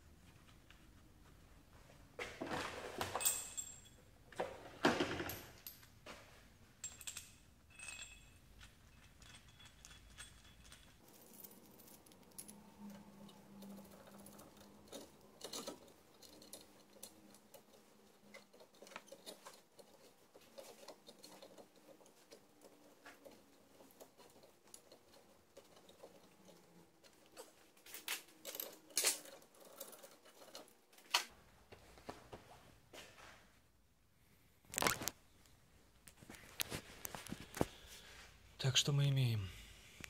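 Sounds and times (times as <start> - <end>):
hand tools clinking on metal: 6.8 - 22.1.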